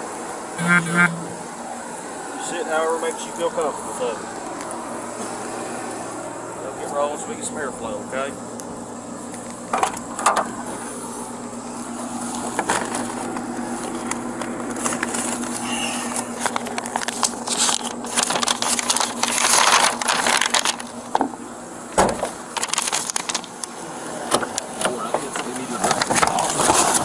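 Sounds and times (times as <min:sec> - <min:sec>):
steady low hum: 0:00.4 - 0:20.1
rustling and crinkling items: 0:12.2 - 0:21.3, 0:22.2 - 0:23.8, 0:24.4 - 0:27.0
thump: 0:22.0 - 0:22.4.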